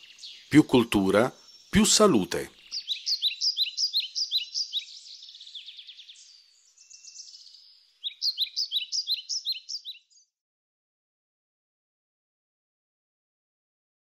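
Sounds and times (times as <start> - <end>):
soft bird trill: 0.0 - 10.3
bird chirping: 0.0 - 10.4.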